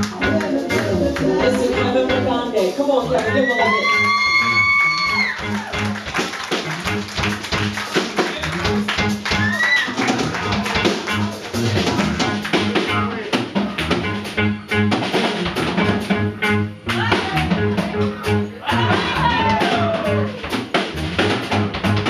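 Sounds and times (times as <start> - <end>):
electric bass line: 0.0 - 22.0
electric guitar: 0.0 - 22.0
drum kit hits: 5.4 - 22.0
rising vocal cry: 18.6 - 20.5.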